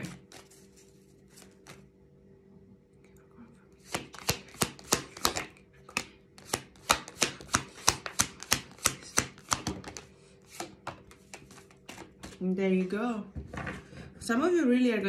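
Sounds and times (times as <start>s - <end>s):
cards shuffling: 0.0s - 1.9s, 3.8s - 12.4s.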